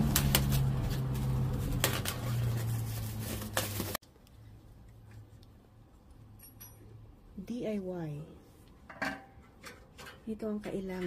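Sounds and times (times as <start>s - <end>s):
plastic wrap crinkling: 0.0s - 4.0s.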